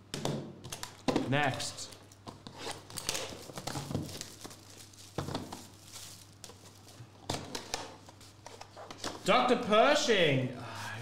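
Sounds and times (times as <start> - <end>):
shrink-wrap crinkling: 1.7 - 9.3.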